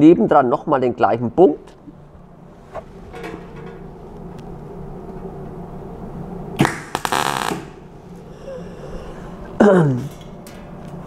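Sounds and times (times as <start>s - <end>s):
welding arc crack: 6.6s - 7.9s
welding arc crackle: 6.6s - 7.9s.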